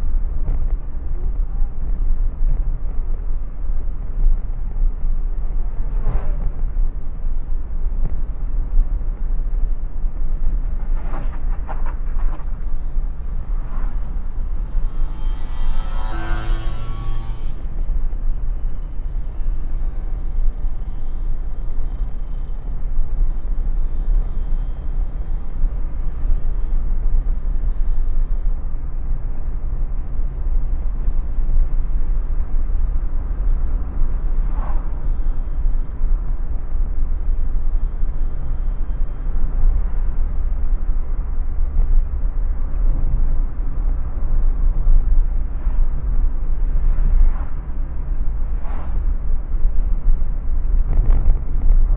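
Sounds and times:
car engine and tyres rumbling: 0:00.0 - 0:51.9.

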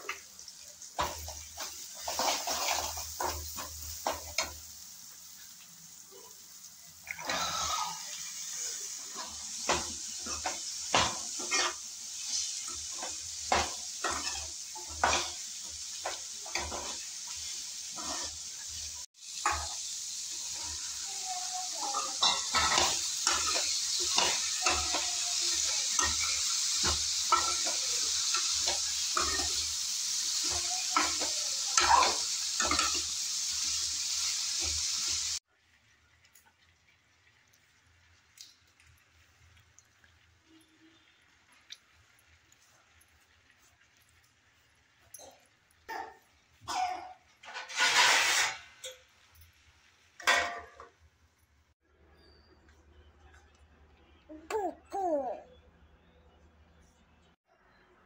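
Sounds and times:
food sizzling in hot oil: 0:00.0 - 0:52.4
metal ladle scraping a pan: 0:01.0 - 0:04.5, 0:09.0 - 0:15.4, 0:16.0 - 0:21.0, 0:21.8 - 0:33.8, 0:47.4 - 0:49.1.

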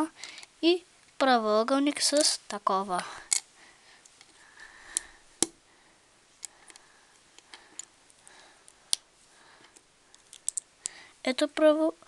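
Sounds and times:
plastic bricks clicking together: 0:10.1 - 0:11.0.

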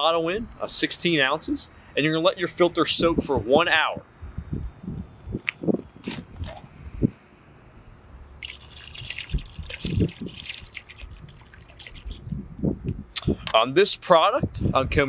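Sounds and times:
liquid pouring into bucket of water: 0:08.4 - 0:12.2.

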